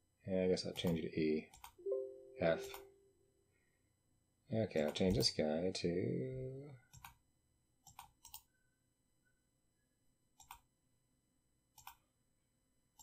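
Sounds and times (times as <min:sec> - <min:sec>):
mouse buttons clicking: 0:07.8 - 0:08.5, 0:10.4 - 0:10.7.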